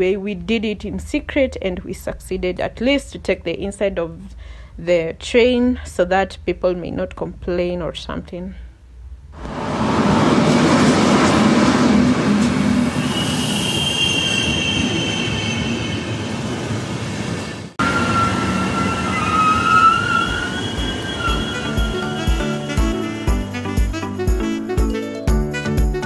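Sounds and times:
train running noise: 0:09.4 - 0:23.3
steel wheel squeal: 0:12.9 - 0:16.5, 0:17.4 - 0:22.8.

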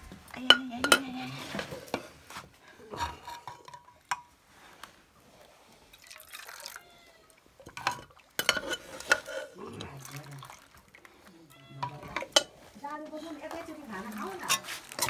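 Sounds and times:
liquid pouring and dripping: 0:05.9 - 0:12.4
metal ladle clinking: 0:07.7 - 0:09.5.

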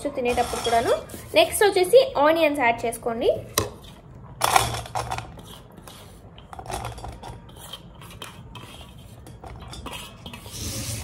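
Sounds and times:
plate clinking and scraping on pot: 0:06.7 - 0:11.0.

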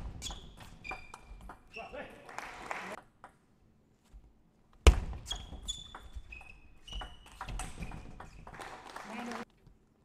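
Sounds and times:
shoes squeaking on floor: 0:00.2 - 0:02.1, 0:05.2 - 0:08.4.

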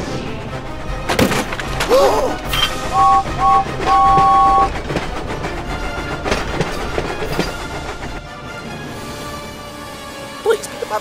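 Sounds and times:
background music: 0:00.0 - 0:11.0
steam locomotive whistle: 0:02.5 - 0:04.8.

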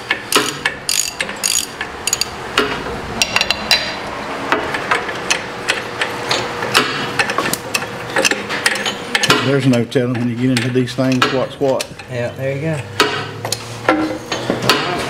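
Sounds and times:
socket ratchet clicking: 0:00.3 - 0:02.3.

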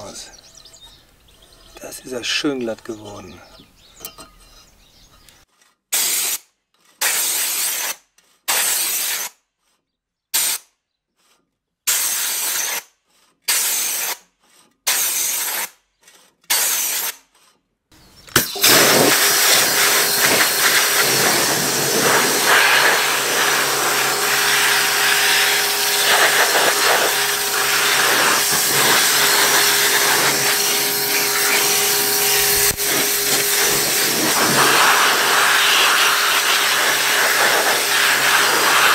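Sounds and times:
pressure washer spray hissing: 0:18.4 - 0:38.9
washer motor and pump hum: 0:18.6 - 0:38.9.

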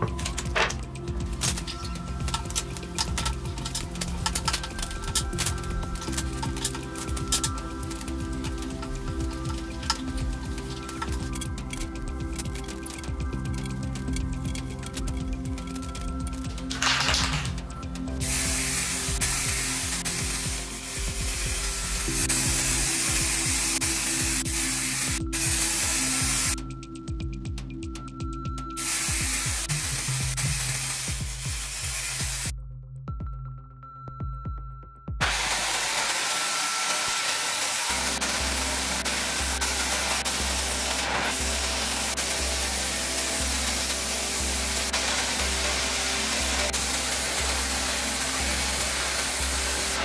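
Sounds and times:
spray paint can hissing: 0:00.0 - 0:26.7, 0:28.8 - 0:32.5, 0:35.2 - 0:50.0
background music: 0:00.0 - 0:50.0
belt sander grinding wood: 0:35.2 - 0:50.0.

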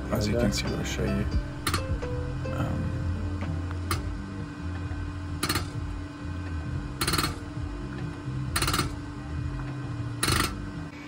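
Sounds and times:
background music: 0:00.0 - 0:11.0
low hum: 0:00.0 - 0:11.0
fuel injector chattering: 0:01.4 - 0:10.6.

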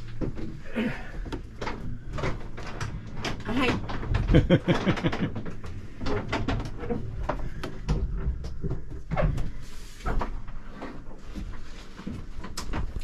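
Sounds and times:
indistinct voices: 0:03.4 - 0:05.3.

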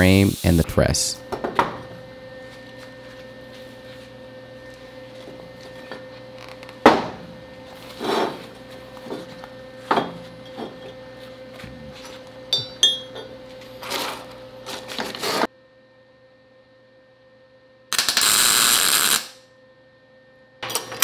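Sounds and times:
ringing metal clinks: 0:12.5 - 0:13.2.

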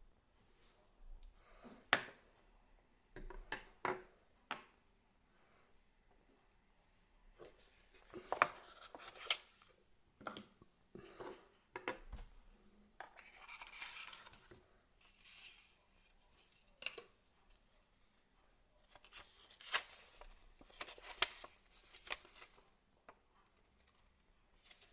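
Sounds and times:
cardboard and paper rustling: 0:13.1 - 0:14.4, 0:18.8 - 0:22.7.

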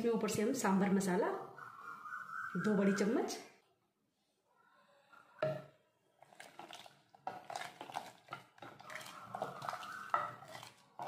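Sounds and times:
ladle scraping and knocking pot: 0:05.4 - 0:11.0
stew sloshing: 0:06.1 - 0:11.0.

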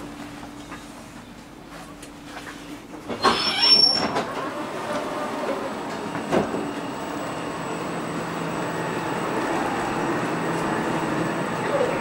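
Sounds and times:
train equipment humming: 0:04.1 - 0:12.0.

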